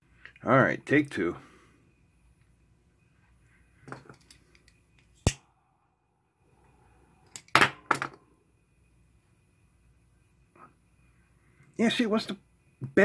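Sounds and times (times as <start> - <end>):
small metal clicks: 4.0 - 5.4.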